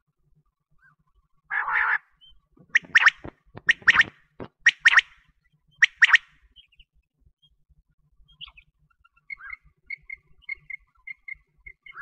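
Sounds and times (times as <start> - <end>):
quail chirping: 1.5 - 5.2, 5.8 - 6.8, 8.3 - 12.0.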